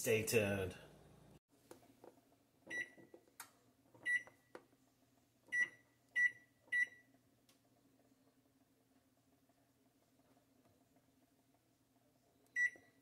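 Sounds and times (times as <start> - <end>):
microwave keypad beeps: 2.7 - 3.0, 4.0 - 4.4, 5.5 - 7.1, 12.6 - 13.0.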